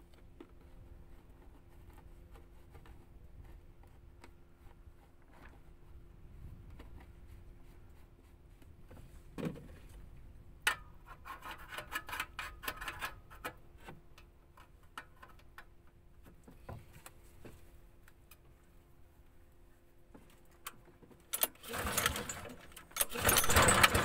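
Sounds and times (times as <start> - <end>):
faint wind noise: 0.6 - 11.1
rattling clicks: 21.3 - 24.0.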